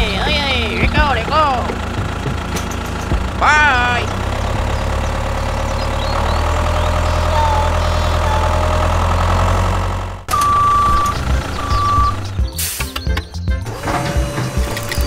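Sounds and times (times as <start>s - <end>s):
tractor engine idling: 0.0s - 15.0s
electronic beep: 10.3s - 12.2s.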